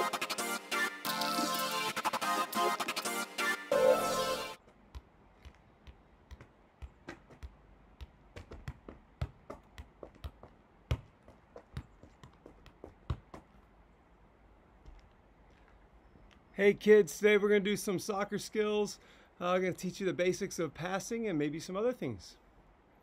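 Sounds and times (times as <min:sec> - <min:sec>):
electronic intro music: 0:00.0 - 0:04.6
soft thumps of ball juggling: 0:04.6 - 0:13.6.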